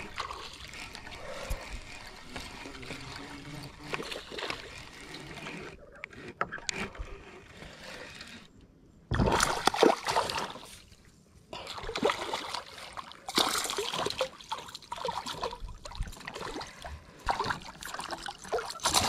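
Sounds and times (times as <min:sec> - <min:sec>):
fish thrashing and splashing water: 0:09.1 - 0:10.9, 0:11.7 - 0:19.0.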